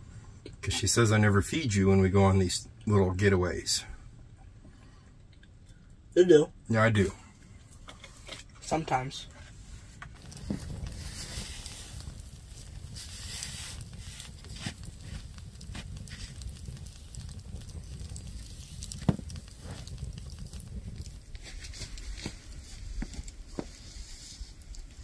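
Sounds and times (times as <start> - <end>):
low steady rumble: 0.0 - 25.0
campfire crackling and popping: 6.8 - 25.0.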